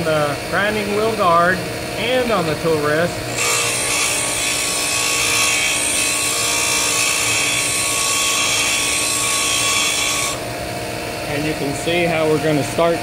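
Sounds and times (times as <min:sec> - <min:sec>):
grinder motor humming: 0:00.1 - 0:13.0
grinding wheel grinding steel: 0:03.1 - 0:13.0.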